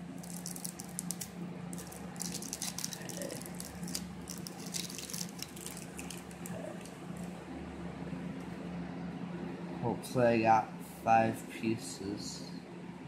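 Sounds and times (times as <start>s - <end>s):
wrapper crinkling: 0.1s - 6.9s.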